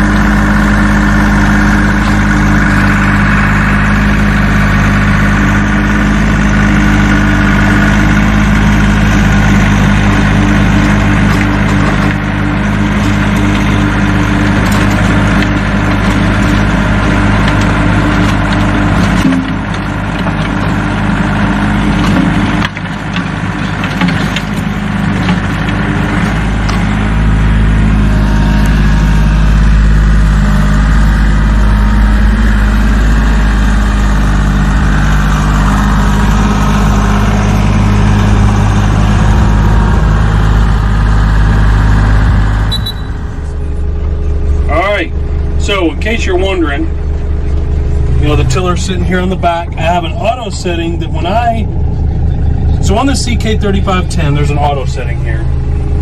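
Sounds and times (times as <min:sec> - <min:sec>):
rotary tiller through ground: 0:00.0 - 0:56.0
tractor diesel engine under load: 0:00.0 - 0:56.0.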